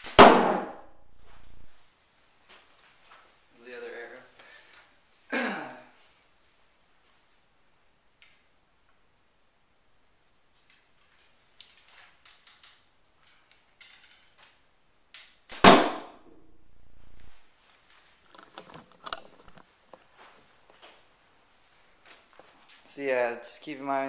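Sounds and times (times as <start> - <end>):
arrow hitting cardboard box: 0.0 - 1.7, 15.5 - 16.5
rustling: 0.8 - 5.3, 10.1 - 14.8, 16.2 - 23.0
handling clicks: 18.3 - 19.7.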